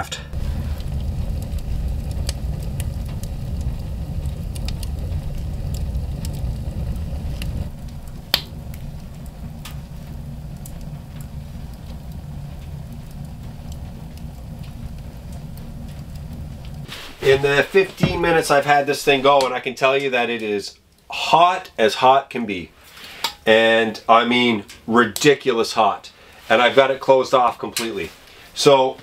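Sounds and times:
wood stove rumbling: 0.0 - 28.9
fire crackles and ticks: 0.1 - 28.8
sharp wood crack: 0.8 - 10.8.

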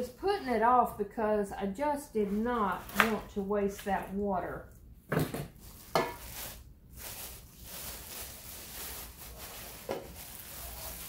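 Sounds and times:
plastic wrapping crinkling: 5.6 - 11.0.

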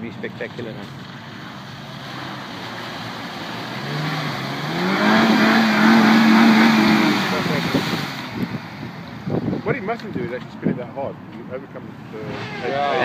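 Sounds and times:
car engine revving hard: 1.7 - 9.6.

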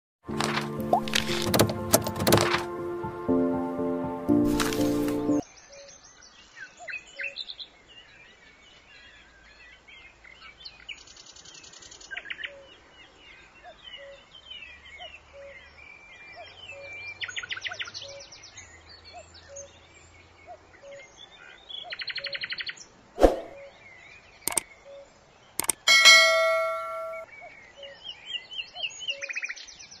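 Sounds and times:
sharp clicks: 0.5 - 2.7, 25.6 - 27.2
small birds chirping: 5.4 - 30.0
bird trills: 25.6 - 27.3
loud ringing ding: 25.7 - 27.2.

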